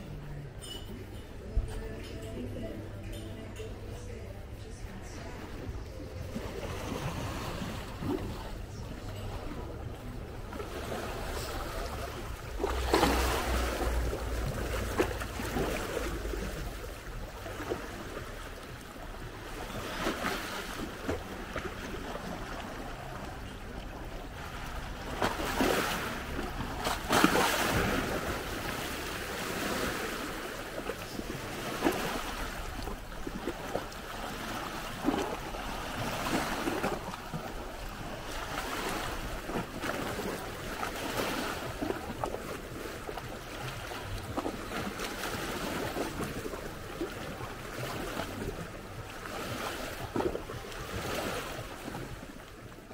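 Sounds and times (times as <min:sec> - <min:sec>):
waves washing onto pebbles: 0:10.6 - 0:18.4, 0:24.3 - 0:46.7.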